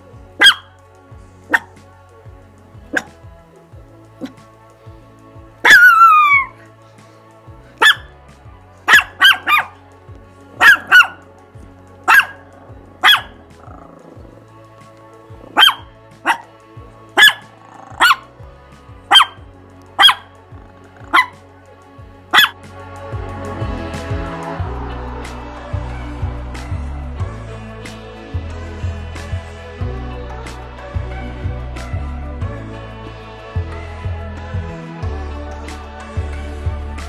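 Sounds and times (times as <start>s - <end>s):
dog barking: 0.4s - 0.7s, 1.5s - 1.7s, 2.9s - 3.1s, 5.6s - 6.5s, 7.8s - 8.1s, 8.9s - 9.8s, 10.6s - 11.2s, 12.1s - 13.9s, 15.5s - 16.5s, 17.2s - 18.3s, 19.1s - 19.4s, 20.0s - 20.3s, 21.0s - 21.4s, 22.3s - 22.6s.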